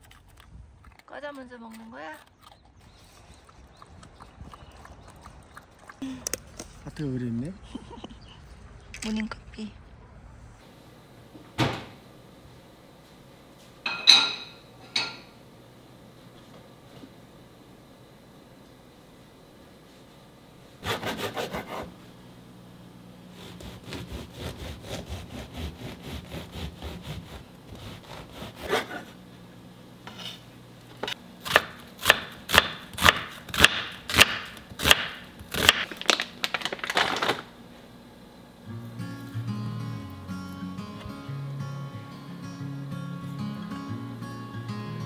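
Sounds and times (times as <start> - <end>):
knife sawing through bread: 20.8 - 21.9, 23.3 - 29.2.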